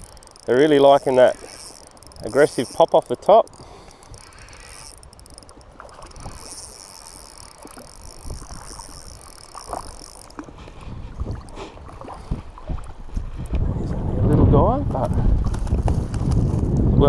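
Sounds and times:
fishing reel whirring: 0:00.0 - 0:11.6
fish splashing: 0:00.0 - 0:13.1
water sloshing: 0:00.0 - 0:13.7
wind: 0:00.0 - 0:17.0.

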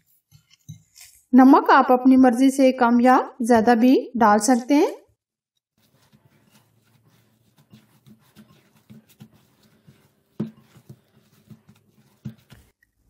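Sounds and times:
hands kneading potato squishes: 0:05.8 - 0:13.0.

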